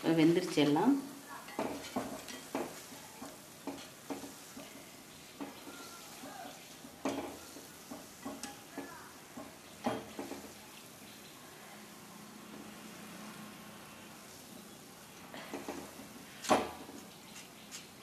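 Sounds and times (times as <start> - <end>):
faint oil sizzle: 0.0 - 18.0
metal skimmer scraping iron pan: 1.4 - 10.7.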